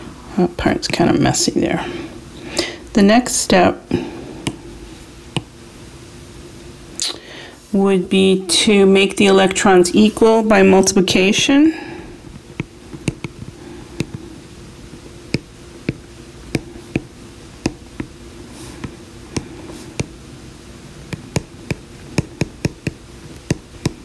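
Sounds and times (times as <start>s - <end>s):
steady low hum: 0.0s - 24.0s
stylus tapping glass screen: 12.6s - 14.2s, 15.3s - 18.1s, 21.1s - 24.0s.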